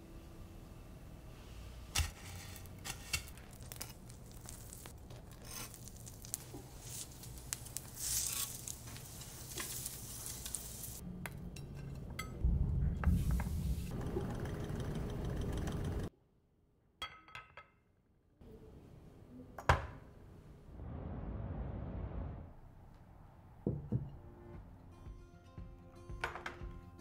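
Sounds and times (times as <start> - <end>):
bread sizzling in oil: 2.0 - 11.0.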